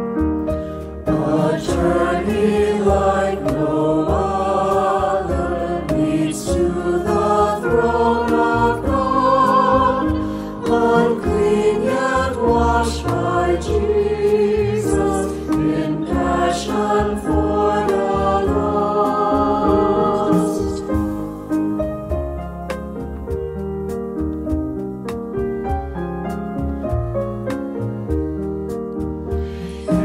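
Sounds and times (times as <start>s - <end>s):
drums: 0.0s - 30.0s
piano: 0.0s - 30.0s
upright bass: 0.0s - 30.0s
group singing a hymn: 1.1s - 21.1s.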